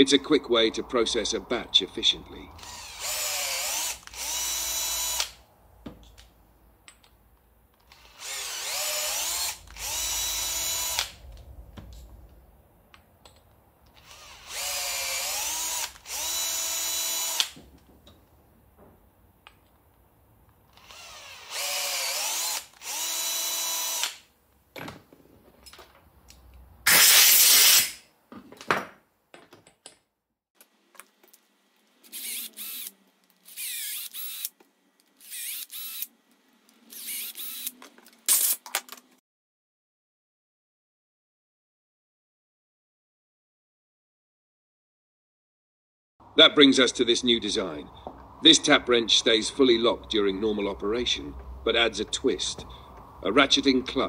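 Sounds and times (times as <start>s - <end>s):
cordless drill motor bursts: 2.6s - 5.4s, 7.9s - 11.2s, 14.0s - 17.6s, 20.7s - 24.3s, 32.0s - 34.6s, 35.2s - 36.1s, 36.9s - 38.6s
short loud hiss: 26.9s - 28.0s.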